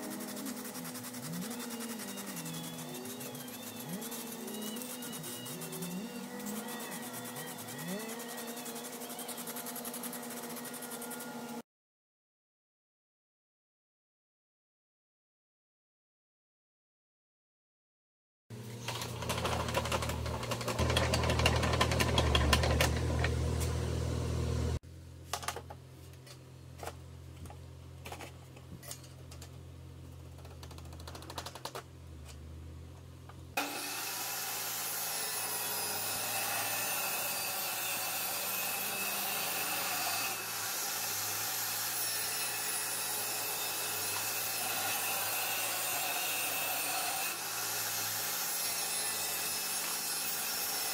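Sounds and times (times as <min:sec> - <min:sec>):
table saw cutting plywood: 0:00.0 - 0:11.6, 0:18.8 - 0:24.8, 0:33.6 - 0:50.9
table saw hum with crackle: 0:00.0 - 0:11.6, 0:18.5 - 0:24.8, 0:32.2 - 0:50.9.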